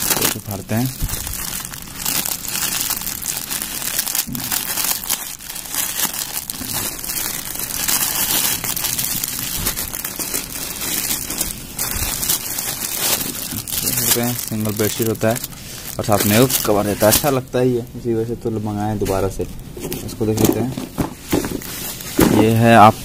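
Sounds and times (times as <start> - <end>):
plastic bag tearing: 0.0 - 17.4
plastic packaging crinkling: 0.0 - 23.0.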